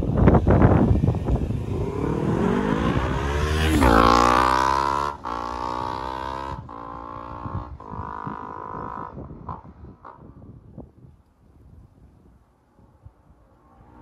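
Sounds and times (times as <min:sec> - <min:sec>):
motorcycle engine accelerating: 0:00.0 - 0:10.6.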